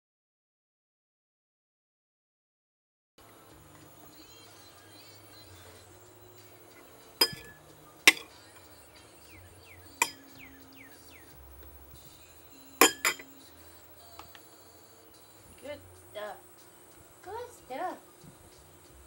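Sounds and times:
clinks and taps on hard surface: 0:07.2 - 0:08.3, 0:10.0 - 0:10.3, 0:12.8 - 0:13.3.

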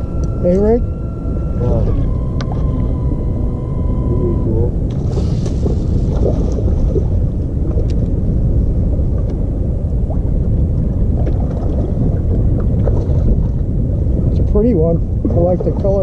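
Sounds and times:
choppy water: 0:00.0 - 0:16.0
wind rumble on microphone: 0:00.0 - 0:16.0.

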